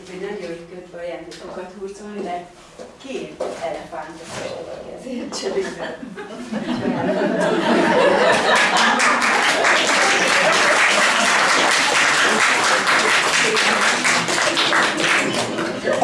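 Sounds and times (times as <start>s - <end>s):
audience applauding: 8.0s - 16.0s.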